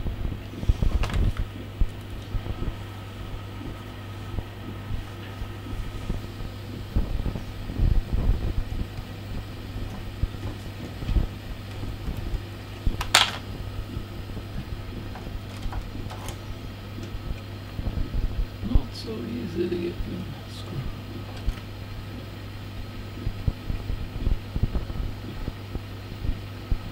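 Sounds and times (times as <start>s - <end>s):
steady low hum: 0.0s - 26.9s.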